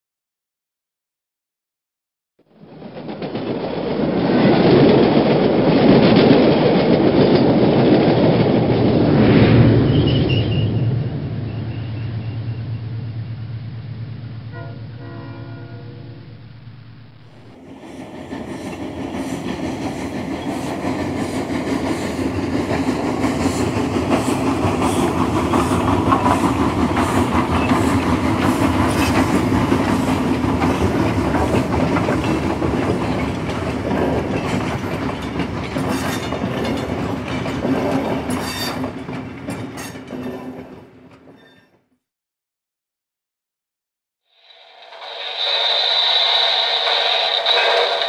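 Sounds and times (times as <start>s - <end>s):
wheels clicking over rails: 2.6s - 9.0s, 17.3s - 41.4s, 44.4s - 48.0s
model train rumbling hum: 11.0s - 40.9s, 44.4s - 48.0s.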